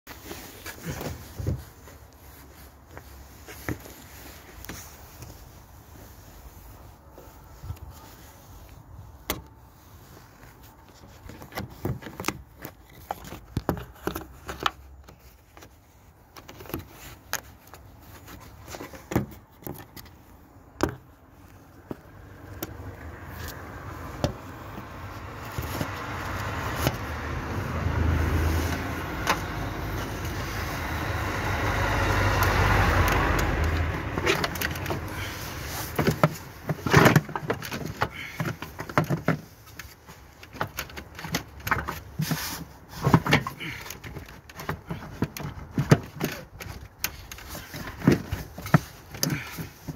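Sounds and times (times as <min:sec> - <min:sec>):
vehicle passing: 0:22.0 - 0:36.0
light clicks and knocks in engine bay: 0:32.1 - 0:49.9.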